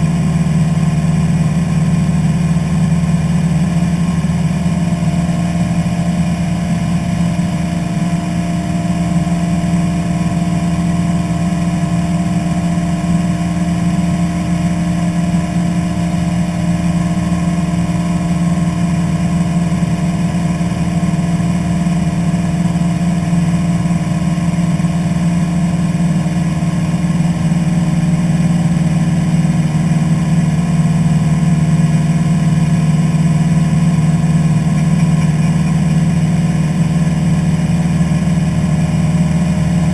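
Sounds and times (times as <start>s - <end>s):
light aircraft engine drone: 0.0s - 39.9s.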